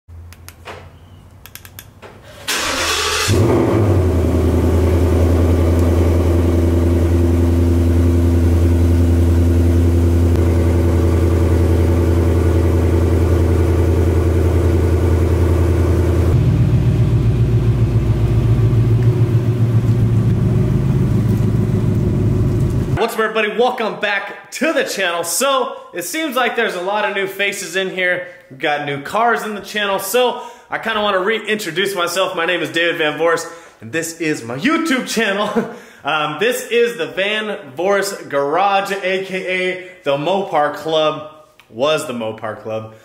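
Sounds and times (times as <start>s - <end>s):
car engine starting and idling: 2.0s - 23.0s.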